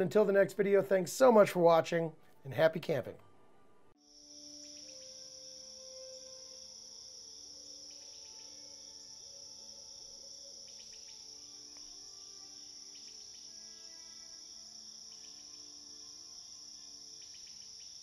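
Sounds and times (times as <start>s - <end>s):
soft slow melodic notes: 2.2s - 14.5s
cricket chorus trilling: 4.0s - 18.0s
chirps: 4.5s - 14.4s, 15.0s - 18.0s.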